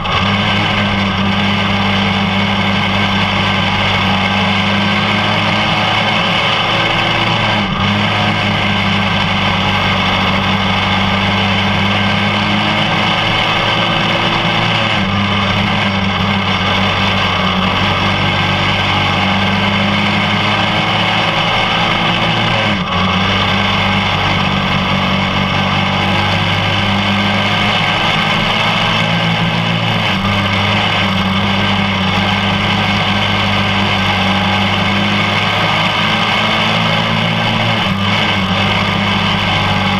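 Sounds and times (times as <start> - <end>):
kart engine running hard: 0.0 - 39.9
track noise: 0.0 - 39.9.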